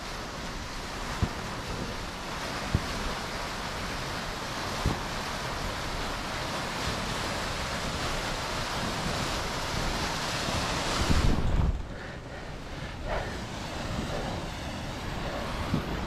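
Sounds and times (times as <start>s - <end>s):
rushing river rapids: 0.0s - 16.0s.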